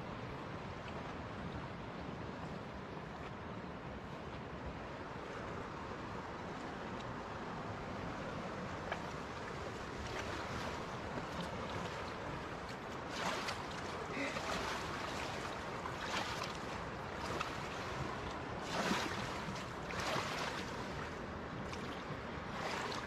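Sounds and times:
fish splashing in water: 9.9 - 21.1.

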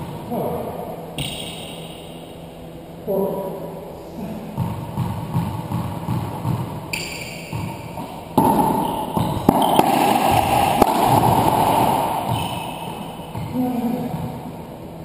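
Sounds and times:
ball bouncing thuds: 1.2 - 2.0, 4.6 - 14.4
racquetball cracks echoing: 1.2 - 2.4, 4.6 - 14.4.

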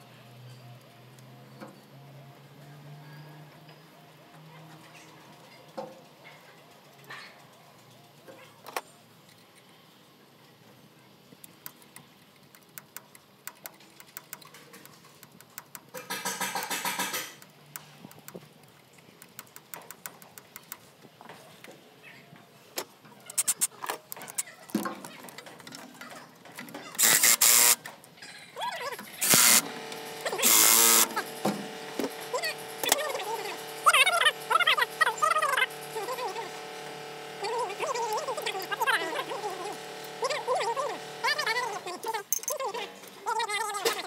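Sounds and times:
handheld power tool burst: 15.5 - 17.5, 27.0 - 27.9, 29.0 - 41.8
metal tools clinking: 42.3 - 42.8.

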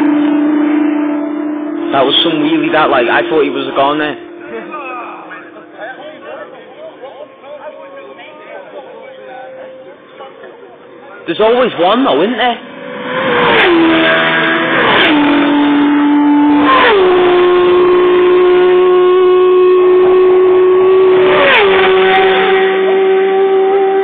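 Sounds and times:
racing motorcycles passing: 0.0 - 24.0.

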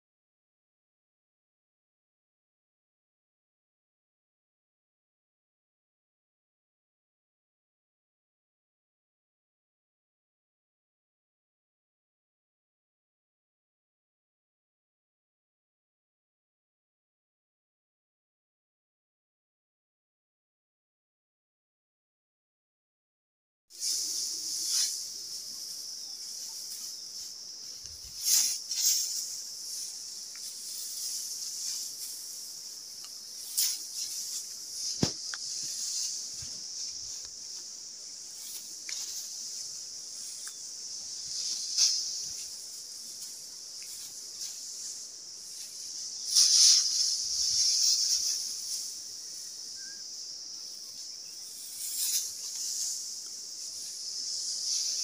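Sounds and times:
insect chorus: 23.7 - 55.0
dry straw rustling: 23.8 - 49.9, 50.6 - 55.0.

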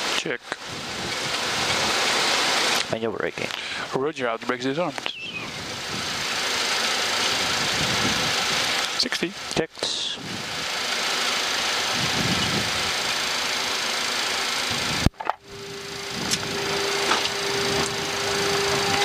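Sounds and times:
rushing cockpit noise: 14.6 - 19.0.

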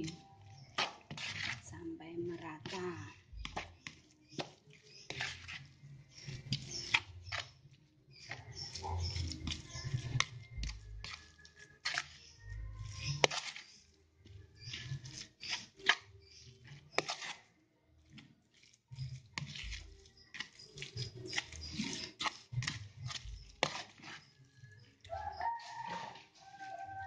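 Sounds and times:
metal spoon scraping plastic bowl: 0.0 - 1.7, 2.6 - 27.0.

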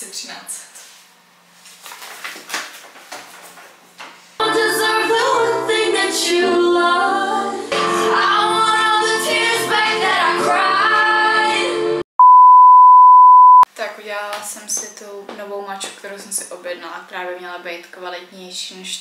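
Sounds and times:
song with female singing: 4.4 - 12.0.

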